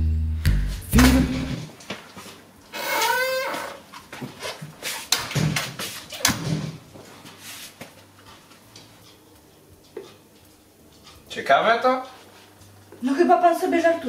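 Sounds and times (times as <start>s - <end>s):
footsteps on tiled floor: 1.1s - 2.8s, 3.4s - 11.3s, 12.0s - 13.2s.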